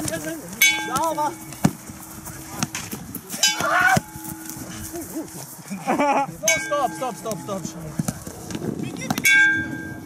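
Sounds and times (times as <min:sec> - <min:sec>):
players shouting: 0:02.4 - 0:04.2.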